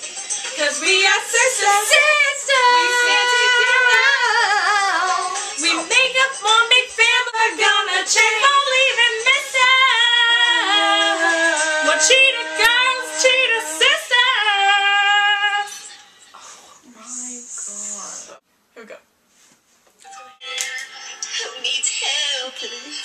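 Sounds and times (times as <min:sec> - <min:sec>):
women singing pop melody: 0:00.0 - 0:16.6.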